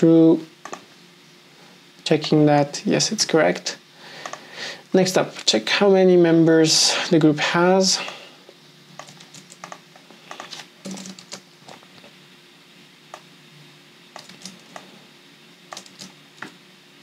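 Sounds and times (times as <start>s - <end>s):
computer keyboard keystrokes: 0.6s - 0.8s, 9.0s - 11.4s, 14.2s - 14.8s, 15.7s - 16.1s.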